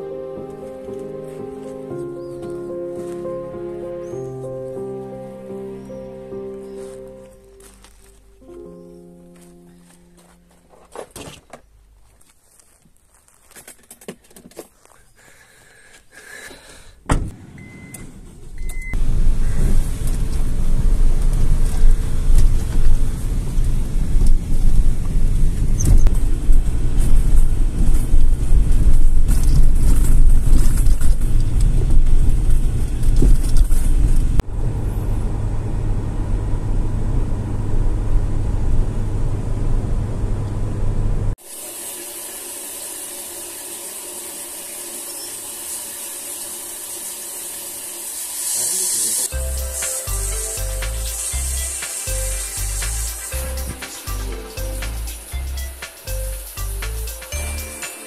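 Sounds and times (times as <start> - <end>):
car interior road rumble: 17.2 - 41.4
shower spraying water: 41.4 - 58.0.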